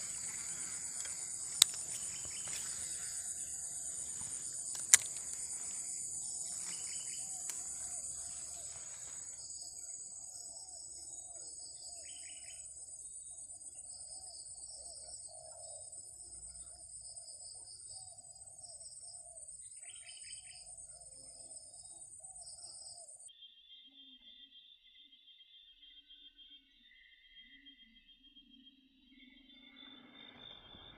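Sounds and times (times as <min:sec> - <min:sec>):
short chirping calls: 0:00.0 - 0:11.1
insects trilling high: 0:00.0 - 0:17.0.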